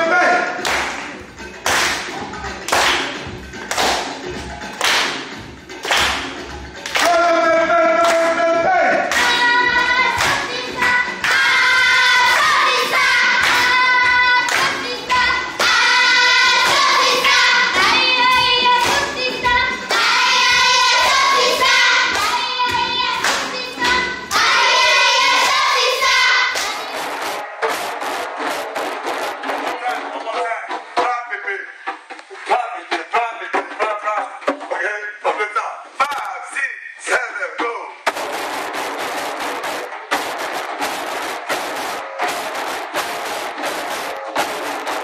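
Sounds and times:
sharp percussive hits: 0.6 - 7.2, 9.1 - 30.1, 38.0 - 45.0
hands clapping in rhythm: 0.6 - 7.4, 8.0 - 8.4, 9.0 - 29.6, 38.1 - 45.0
children singing in unison: 9.1 - 27.4.

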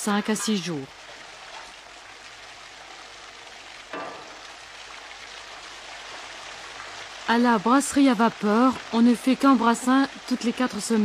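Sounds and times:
liquid bubbling: 0.5 - 11.0
metal clunk: 3.9 - 4.4.

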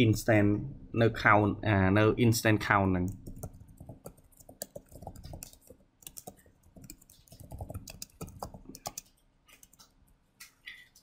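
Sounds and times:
keyboard typing: 3.0 - 10.0.

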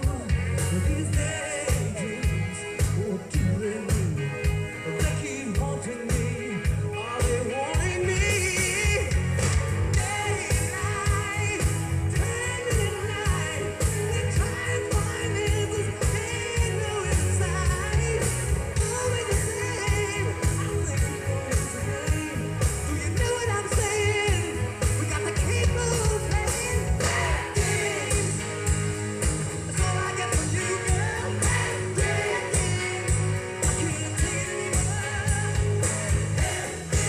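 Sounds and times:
electric guitar: 0.0 - 37.0
lead singer singing: 0.0 - 37.0.

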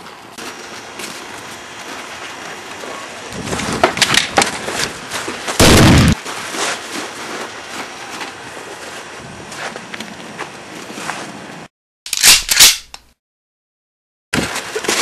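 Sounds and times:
sharp clicks and crunches: 0.4 - 7.0, 12.1 - 13.2
loud distorted gunshot: 5.6 - 6.2.

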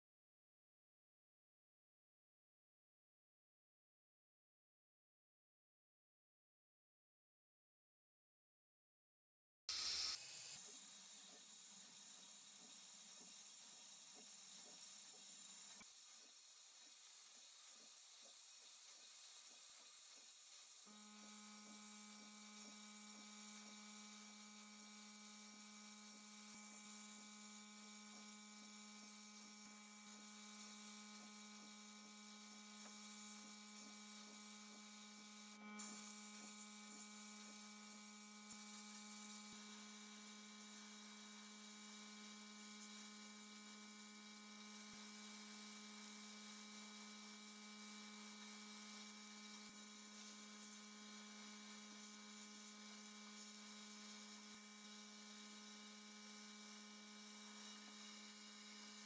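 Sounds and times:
hiss of sandblasting gun: 9.7 - 20.9.

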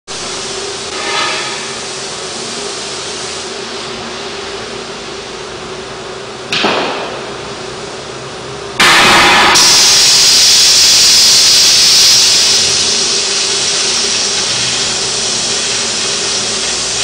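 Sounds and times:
rush of gas: 8.8 - 15.8
cutting torch flame hissing: 8.8 - 17.0.

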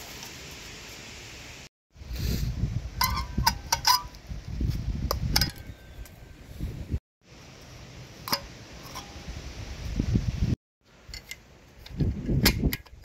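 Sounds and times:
wind rumble on microphone: 2.0 - 7.0, 9.2 - 10.6, 11.8 - 13.0.

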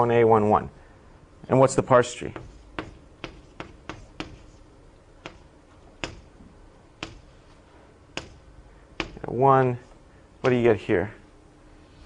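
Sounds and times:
taps of writing on a board: 2.4 - 4.6, 5.2 - 6.3, 7.0 - 7.3, 8.1 - 8.4, 9.0 - 9.2.

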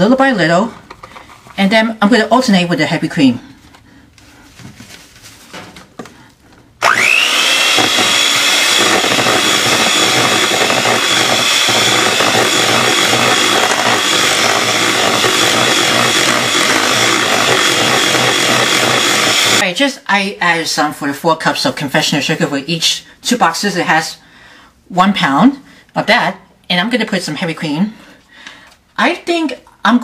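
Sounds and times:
electric hand mixer whirring: 6.8 - 19.6.

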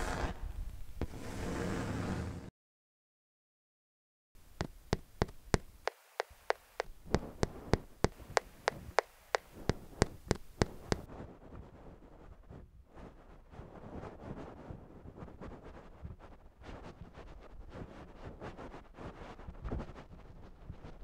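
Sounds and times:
sharp regular clicks: 4.6 - 11.1.

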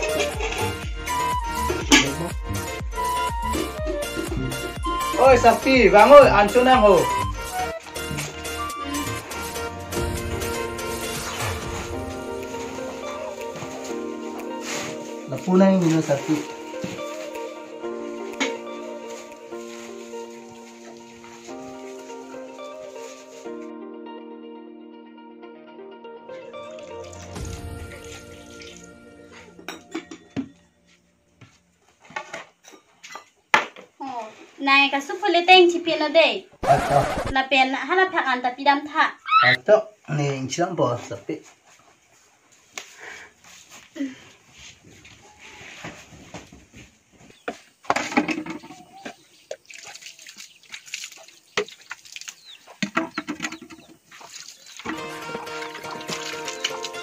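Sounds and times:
background music: 0.0 - 31.6, 54.8 - 57.0
steel bowls and plates clinking: 29.6 - 30.5
plastic plates clattering: 47.9 - 49.0
water splashing onto plates: 48.0 - 57.0
water pouring onto plate: 54.1 - 57.0.

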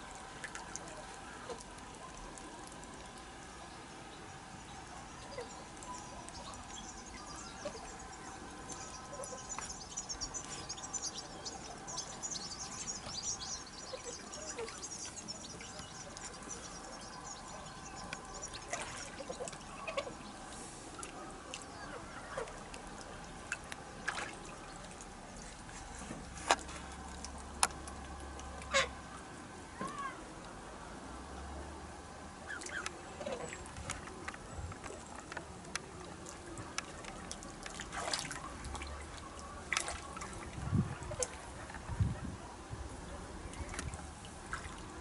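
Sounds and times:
faint steady hum: 0.0 - 45.0
small birds twittering: 3.0 - 25.4.

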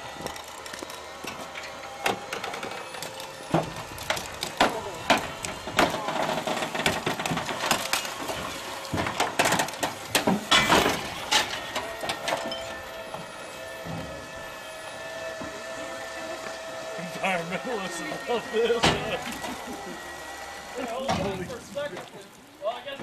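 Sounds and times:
sharp knocks and cracks: 0.2 - 12.5
metal body scraping on rock: 5.2 - 14.6
onlookers talking: 13.9 - 23.0.

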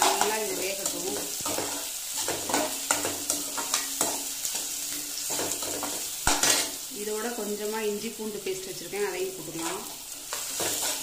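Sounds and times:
spatula scraping pan: 0.0 - 6.8, 9.4 - 11.0
food sizzling in hot oil: 0.0 - 11.0.

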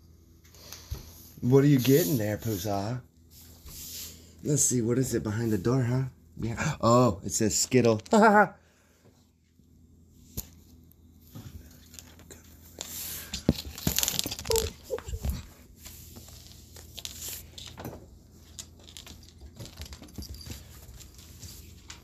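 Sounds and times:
hand rubbing on wooden floor: 0.9 - 4.3.

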